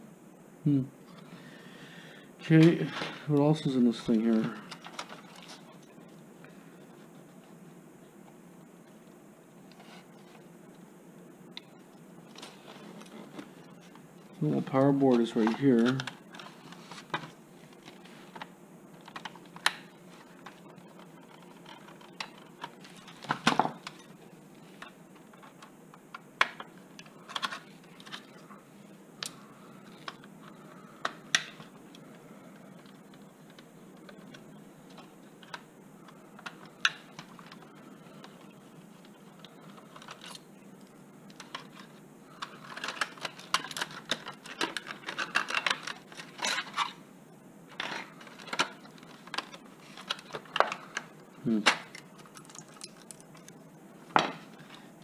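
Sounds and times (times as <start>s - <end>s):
plastic parts clicking: 41.3s - 46.9s.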